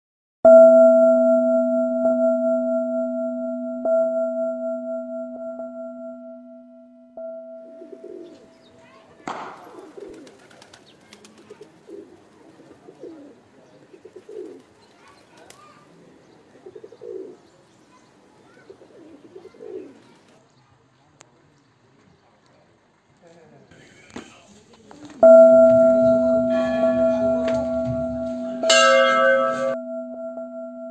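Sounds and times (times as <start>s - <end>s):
steady ringing tone: 0.5s - 8.2s, 25.2s - 30.9s
faint outdoor background: 0.5s - 30.9s
pigeon cooing: 7.6s - 14.8s, 16.5s - 17.4s, 18.5s - 20.2s
knock: 25.6s - 28.6s.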